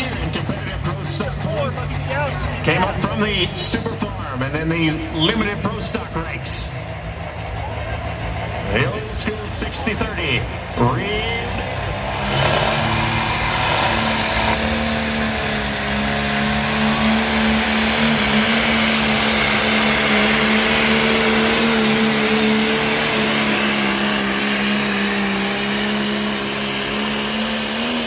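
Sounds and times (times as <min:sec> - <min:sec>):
tractor diesel engine at full load: 0:00.0 - 0:28.0
high turbo whistle: 0:12.3 - 0:27.9.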